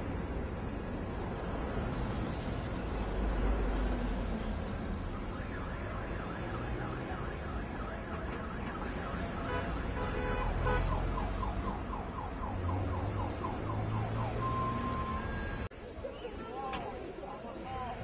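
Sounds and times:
low traffic rumble: 0:00.0 - 0:18.0
car alarm: 0:13.0 - 0:15.7.

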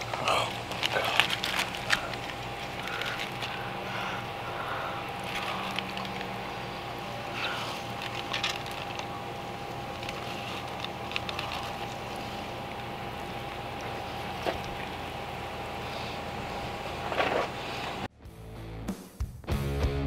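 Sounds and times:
meat squishing: 0:00.0 - 0:15.1
foil crinkling: 0:00.0 - 0:15.2
steady background hum: 0:00.0 - 0:18.1.

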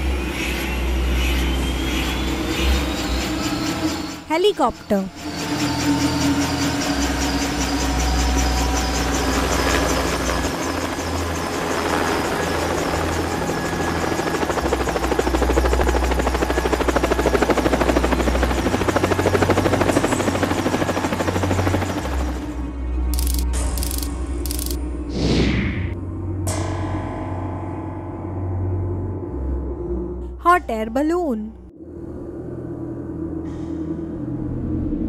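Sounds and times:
helicopter rotor chop: 0:02.9 - 0:22.6, 0:23.2 - 0:24.8.

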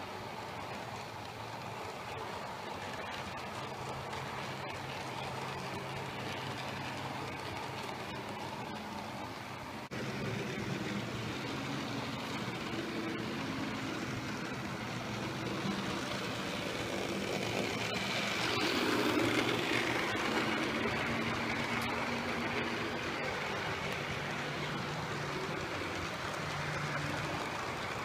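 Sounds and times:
model locomotive motor drone: 0:00.0 - 0:28.0
wheels rumbling on rails: 0:00.0 - 0:28.0.

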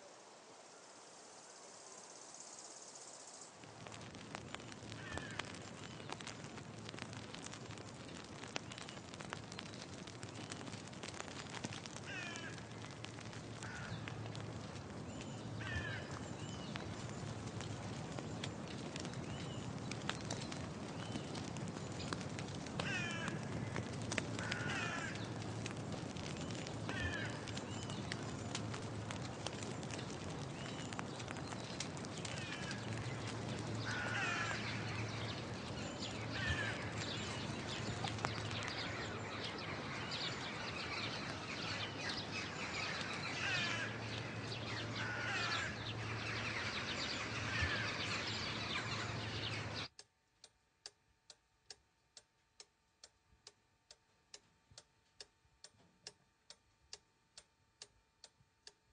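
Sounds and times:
small crackles: 0:02.0 - 0:58.9
crows cawing: 0:04.9 - 0:05.7, 0:11.9 - 0:12.9, 0:13.5 - 0:14.2, 0:15.6 - 0:16.3, 0:22.8 - 0:25.4, 0:26.2 - 0:28.0, 0:32.1 - 0:49.8.

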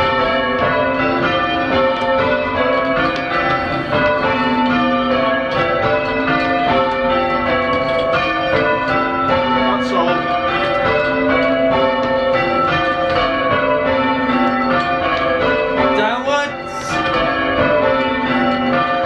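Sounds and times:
church bells change ringing: 0:00.0 - 0:19.0.

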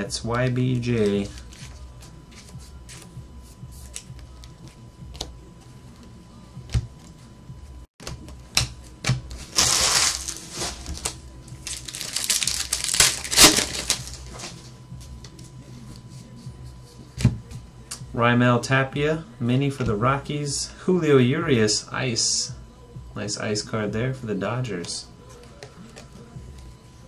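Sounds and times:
foil wrapper crinkling and tearing: 0:09.3 - 0:14.6.

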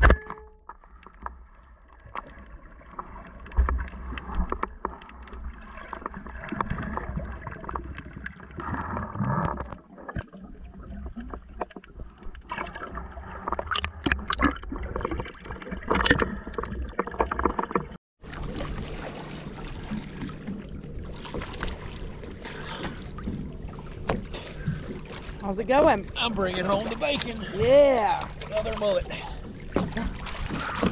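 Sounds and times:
water sloshing underwater: 0:00.0 - 0:30.9
water lapping hiss: 0:18.4 - 0:30.9.

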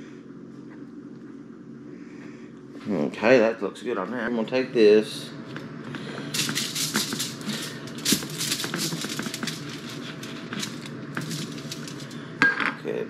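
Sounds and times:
aluminium foil crackling: 0:06.2 - 0:12.4.

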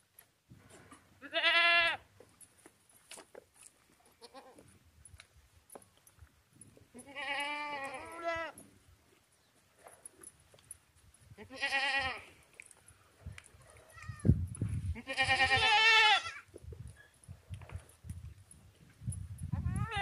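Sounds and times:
goat bleating: 0:01.2 - 0:02.0, 0:04.2 - 0:04.6, 0:07.0 - 0:08.6, 0:11.4 - 0:12.4, 0:14.9 - 0:16.5.

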